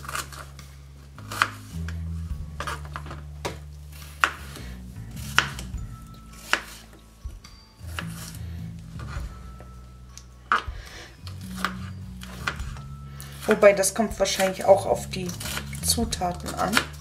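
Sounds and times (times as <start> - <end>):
knife chopping on cutting board: 2.6 - 4.6, 5.2 - 5.7, 6.4 - 6.8, 14.2 - 17.0.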